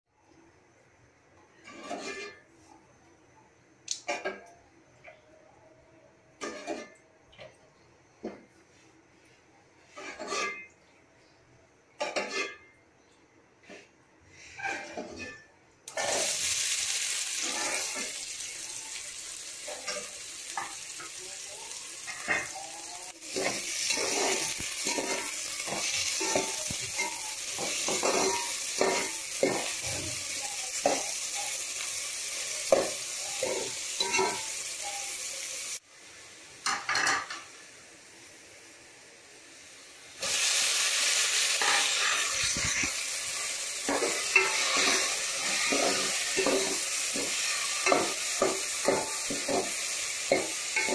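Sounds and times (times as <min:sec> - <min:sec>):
utensil scraping a metal pot: 0:01.6 - 0:02.5, 0:09.9 - 0:10.7, 0:14.3 - 0:16.2
onions sizzling in hot oil: 0:15.9 - 0:50.9.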